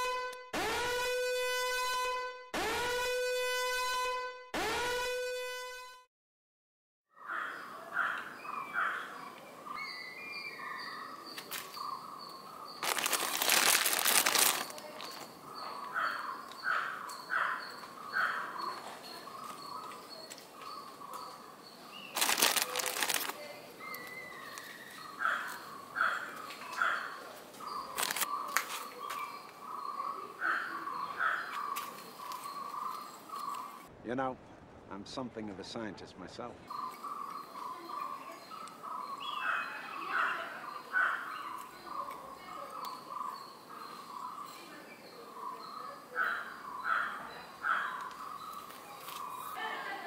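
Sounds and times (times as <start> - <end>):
birds chirping: 7.2 - 33.9, 35.2 - 50.0
loud rustling noise: 12.8 - 15.3, 22.1 - 23.4.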